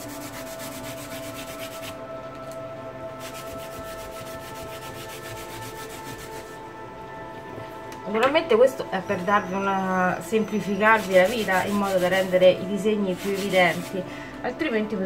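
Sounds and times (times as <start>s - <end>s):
paper towel rubbing plastic stencil: 10.8s - 12.5s, 13.1s - 14.0s.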